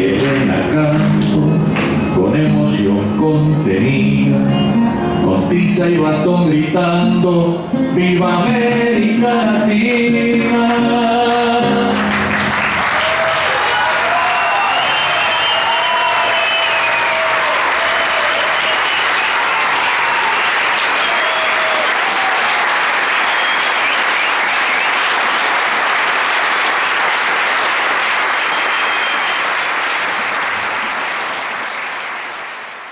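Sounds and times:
audience applauding: 0:11.3 - 0:32.9.

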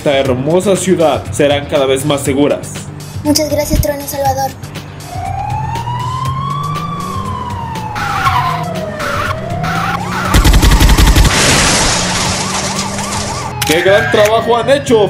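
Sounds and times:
siren wailing: 0:05.0 - 0:14.6
crackling electric zap: 0:10.3 - 0:13.5.

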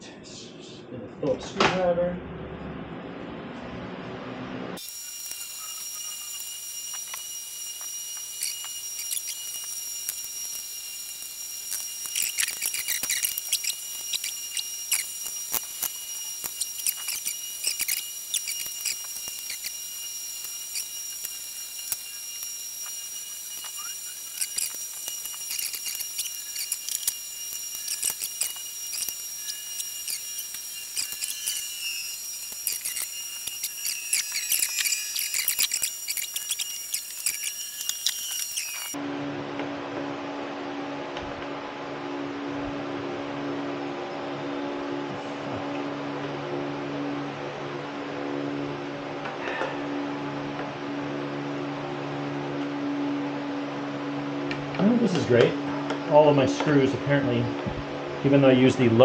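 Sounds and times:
high-pitched whine: 0:02.0 - 0:59.0.

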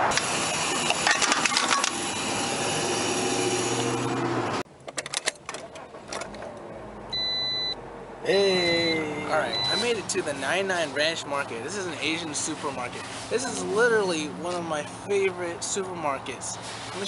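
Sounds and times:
outdoor background noise: 0:00.0 - 0:17.0
short high electronic beep: 0:08.6 - 0:09.9.

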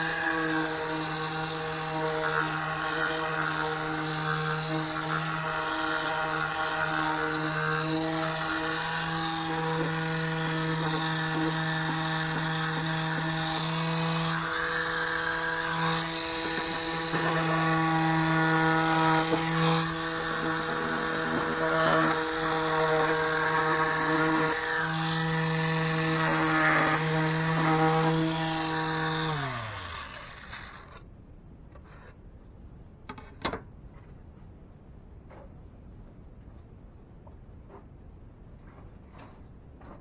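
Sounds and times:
sander sanding wood: 0:00.0 - 0:30.9
motor winding down: 0:00.0 - 0:31.0.

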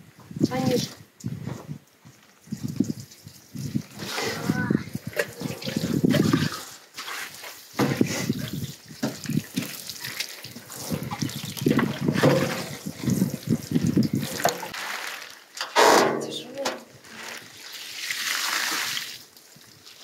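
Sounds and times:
water splashing on bathtub: 0:02.6 - 0:15.4.

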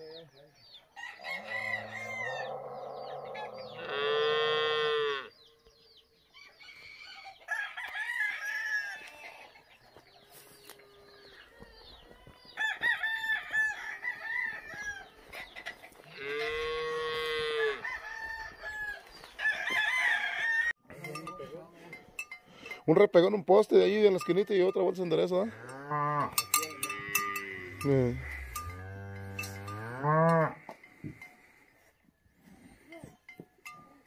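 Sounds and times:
rooster crowing: 0:01.0 - 0:03.9, 0:06.4 - 0:09.5, 0:12.6 - 0:15.3, 0:16.2 - 0:20.8
chicken clucks and chirps: 0:09.0 - 0:12.7, 0:14.4 - 0:16.1.

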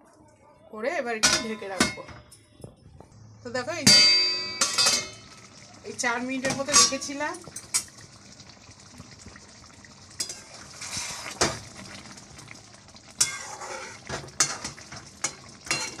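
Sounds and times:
gravy bubbling and sizzling: 0:02.8 - 0:16.0
metal spatula scraping a pot: 0:10.2 - 0:11.6, 0:13.2 - 0:16.0.

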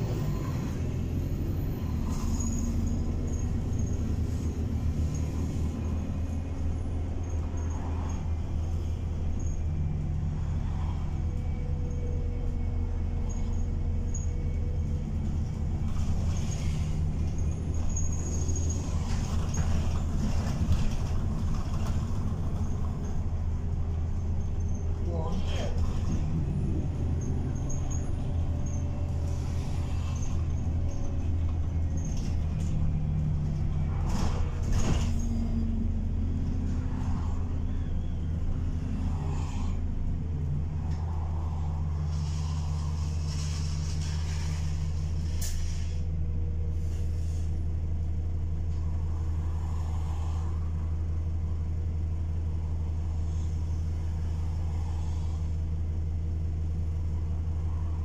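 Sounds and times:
bus engine drone: 0:00.0 - 0:58.0
air brake hisses: 0:42.2 - 0:46.1.

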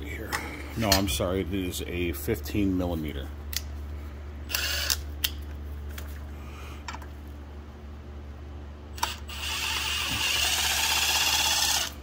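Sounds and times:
steady low hum: 0:00.0 - 0:12.0.

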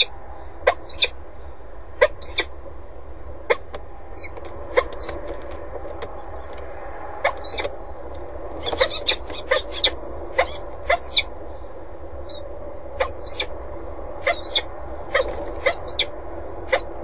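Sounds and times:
steady low hum: 0:00.0 - 0:17.0
falcon harsh calls: 0:14.2 - 0:16.1.

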